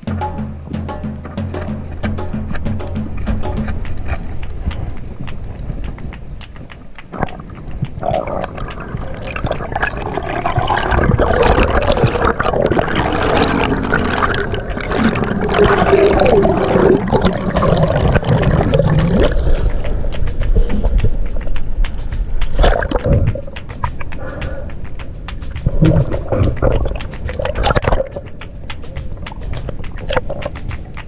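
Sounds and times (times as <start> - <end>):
underwater crackling clicks: 0.9 - 31.0
water bubbling and gurgling: 7.1 - 21.5, 22.5 - 24.3, 25.6 - 28.4.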